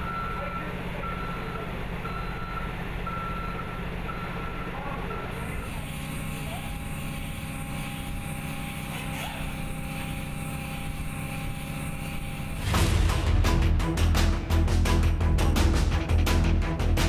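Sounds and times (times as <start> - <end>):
faint steady whine: 0.0 - 12.8
vehicle engine rumbling: 0.0 - 17.0
music: 12.6 - 17.0.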